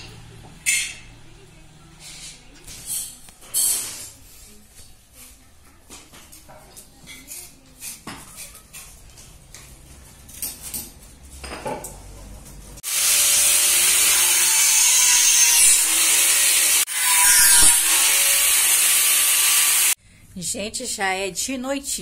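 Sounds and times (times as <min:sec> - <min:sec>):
power tool on wooden board: 0:12.8 - 0:20.0.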